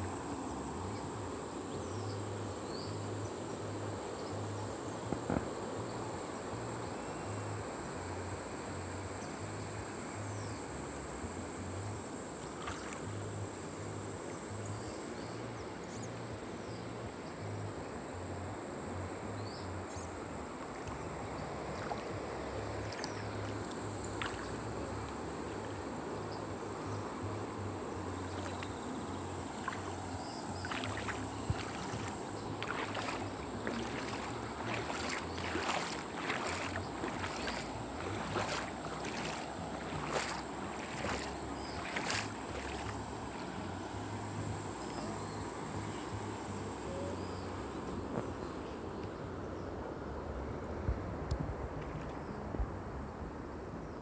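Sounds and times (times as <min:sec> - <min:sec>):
fast-flowing river rushing: 0:20.3 - 0:46.8
high-pitched insect drone: 0:28.1 - 0:47.4.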